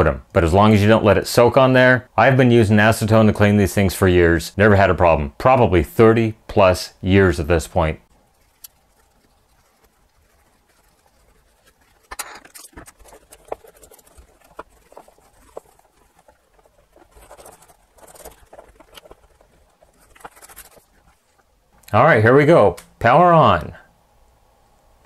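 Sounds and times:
paper towel rubbing on plastic: 8.2 - 21.5.

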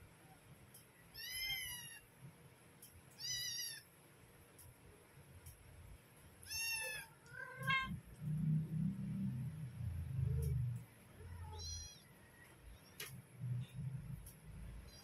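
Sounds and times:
cat meowing: 1.1 - 2.0, 3.2 - 3.8, 6.4 - 8.0, 11.2 - 12.1.

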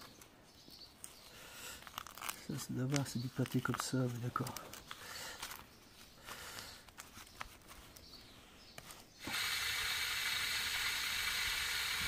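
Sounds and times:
foil lid peeling crinkles: 1.0 - 9.1
hose water pouring into plastic cup: 9.2 - 12.0.

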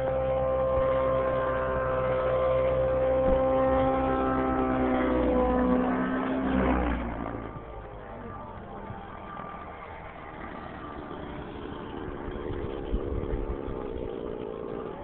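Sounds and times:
model helicopter engine and rotor: 0.0 - 15.0
wind on microphone: 12.0 - 15.0.

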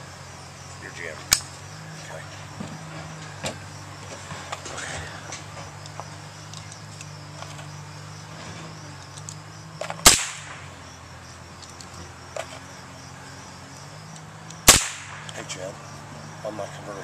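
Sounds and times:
steady low hum: 0.0 - 17.0
rifle shot: 10.0 - 10.7, 14.6 - 15.4.

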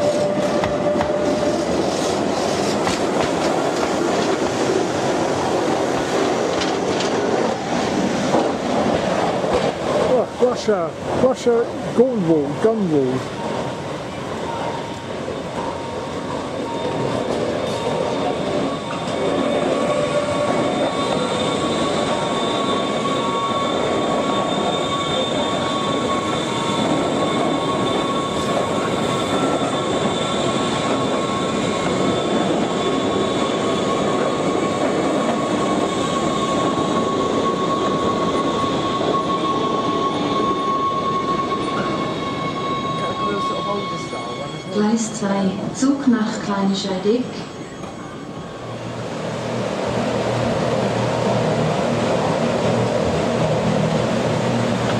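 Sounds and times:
electric train running with whine: 13.5 - 54.9.

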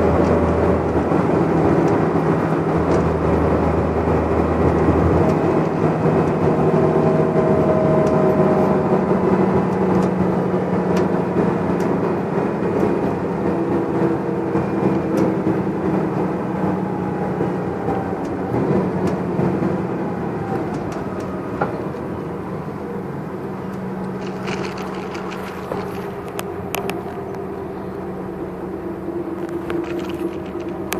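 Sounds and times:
bus diesel engine drone: 0.0 - 30.9
light rattles: 24.1 - 26.4.

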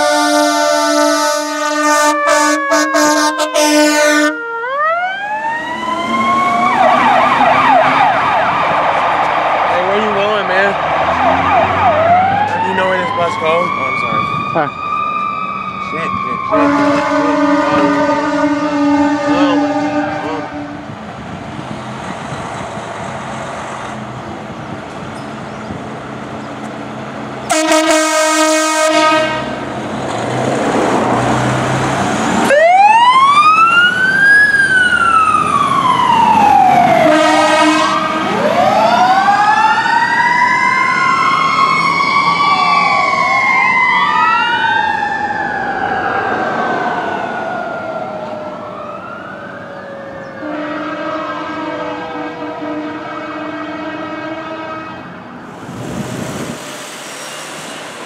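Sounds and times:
fire truck horn blasts: 0.0 - 4.5, 16.4 - 20.8, 27.5 - 29.6, 37.0 - 38.6, 50.4 - 55.2
sirens wailing: 0.0 - 55.6.

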